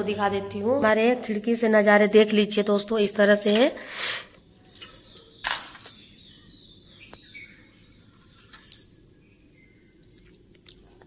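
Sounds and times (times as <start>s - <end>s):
faint bird chirps: 3.8s - 11.0s.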